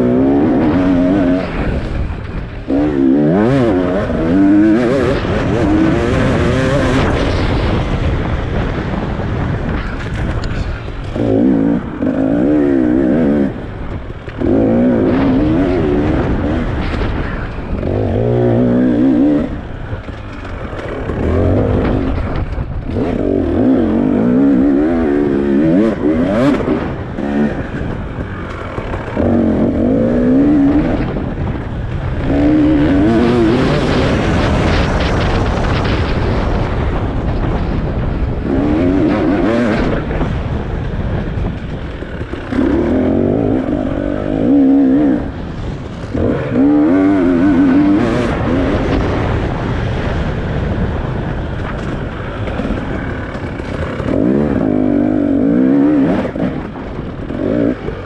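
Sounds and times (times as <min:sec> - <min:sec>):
continuous rushing noise: 0:00.0 - 0:58.0
motorcycle engine revving: 0:00.0 - 0:58.0.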